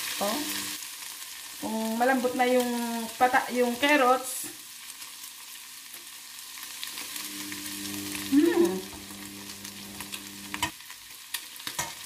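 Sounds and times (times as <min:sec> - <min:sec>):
meat sizzling in a pot: 0:00.0 - 0:12.0.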